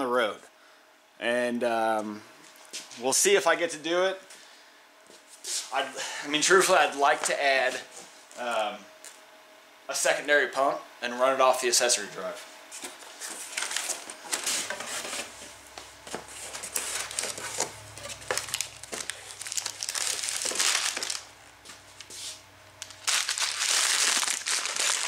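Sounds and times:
packing paper crumpling: 16.3 - 21.3, 22.8 - 25.0.

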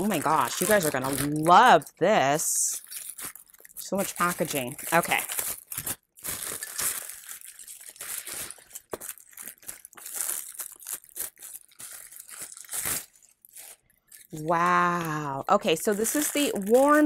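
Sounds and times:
woman speaking: 0.0 - 2.8, 3.8 - 5.3, 14.3 - 17.0
wrapping paper rustling and ripping: 0.0 - 17.0.

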